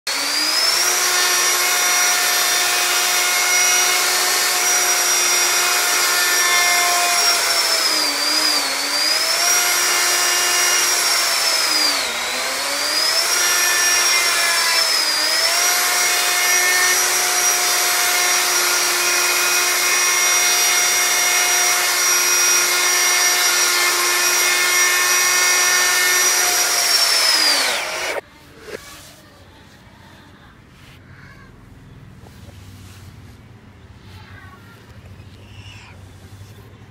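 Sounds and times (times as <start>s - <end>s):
electric router high whine: 0.1s - 28.2s
router motor winding down: 0.1s - 28.8s.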